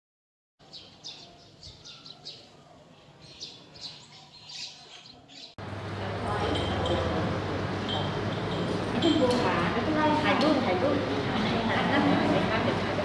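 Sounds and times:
small birds chirping: 0.6 - 5.6
faint outdoor background: 0.6 - 8.5.

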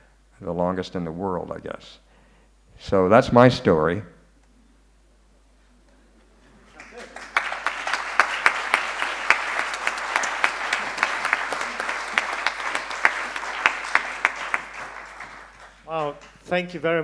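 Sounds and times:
audience applauding: 6.7 - 16.5.

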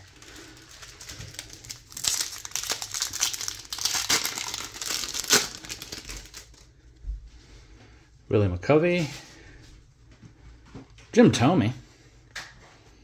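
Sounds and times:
foil wrapper crinkling: 0.0 - 6.7
foil wrapper ripping: 0.0 - 6.7.

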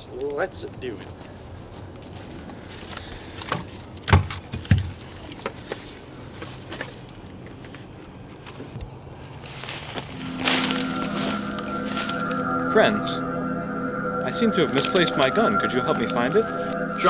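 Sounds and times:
footsteps in woodland: 1.0 - 4.0, 5.0 - 12.5
background music with held notes: 10.1 - 17.0.

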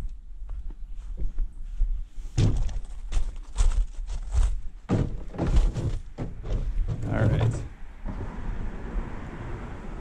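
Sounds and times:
footsteps crunching on gravel: 0.5 - 7.2
paddleboard thumps: 4.3 - 7.8.

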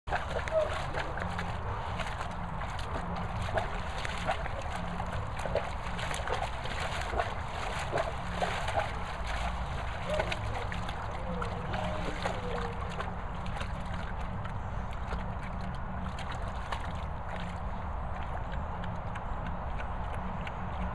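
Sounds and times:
water splashing in paddling pool: 0.1 - 20.9.

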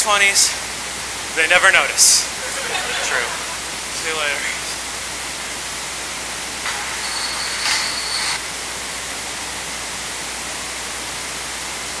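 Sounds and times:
recording hiss: 0.0 - 12.0.

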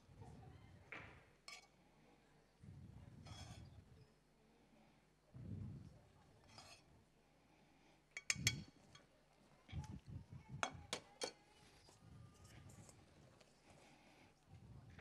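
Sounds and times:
metal spoon clinking on plates: 1.5 - 1.8, 8.1 - 9.1, 10.6 - 11.5.

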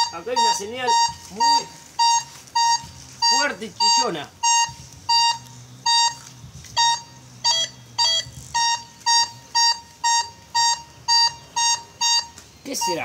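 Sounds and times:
metal detector beeping: 0.0 - 13.0.

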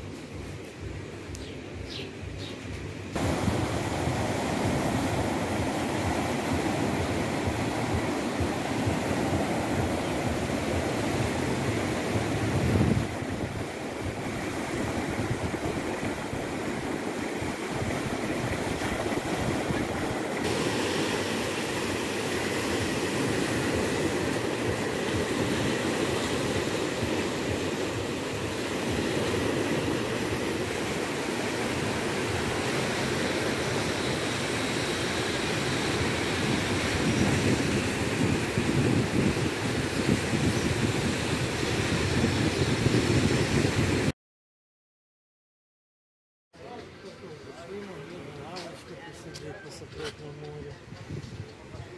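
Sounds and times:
waves breaking on beach: 3.2 - 44.1.

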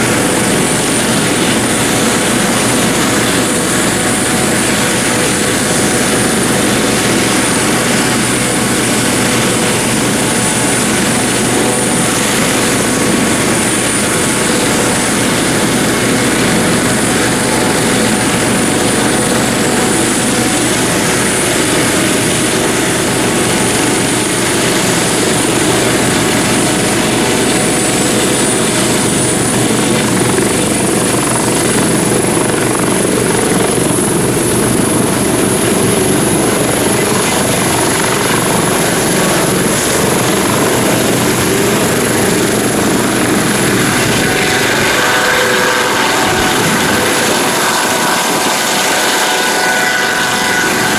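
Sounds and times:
helicopter rotor and turbine whine: 0.0 - 50.9.

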